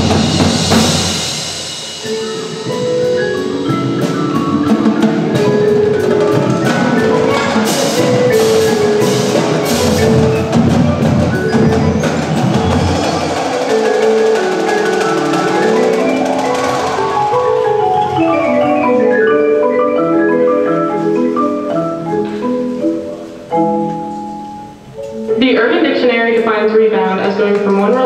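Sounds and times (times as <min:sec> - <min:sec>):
marimba mallet runs: 0:00.0 - 0:26.1.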